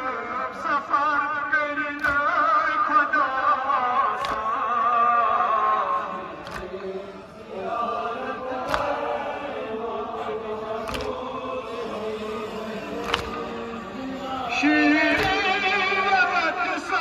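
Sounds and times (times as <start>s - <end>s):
man singing into a microphone: 0.0s - 7.3s, 11.9s - 17.0s
crowd of men chanting: 0.0s - 17.0s
chest-beating slaps: 2.0s - 2.4s, 4.2s - 4.6s, 6.4s - 7.0s, 8.6s - 9.2s, 10.8s - 11.2s, 13.0s - 13.6s, 15.1s - 15.5s.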